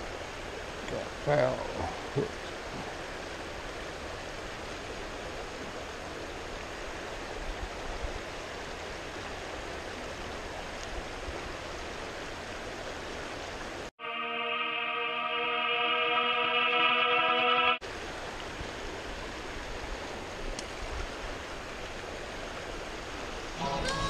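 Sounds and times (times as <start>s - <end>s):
music: 14.0s - 17.8s, 23.6s - 24.0s
water rushing through spillway: 17.8s - 24.0s.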